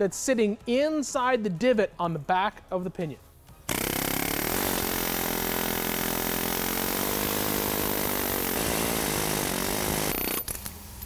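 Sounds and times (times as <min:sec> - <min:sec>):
pneumatic air hammer hammering: 0:03.7 - 0:10.8.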